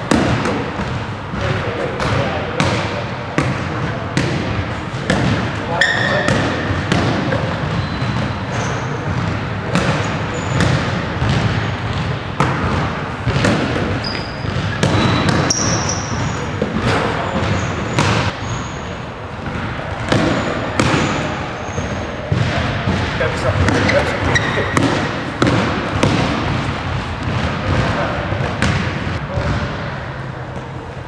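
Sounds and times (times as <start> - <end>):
sneakers squeaking on hardwood: 5.1 - 26.3
basketball bouncing on hardwood: 10.6 - 18.3, 21.8 - 26.5.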